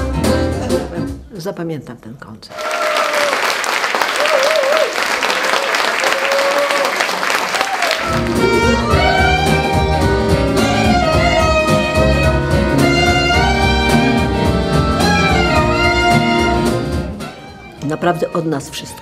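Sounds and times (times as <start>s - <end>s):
guitar: 0.0s - 1.3s, 8.0s - 19.0s
saxophone: 7.9s - 19.0s.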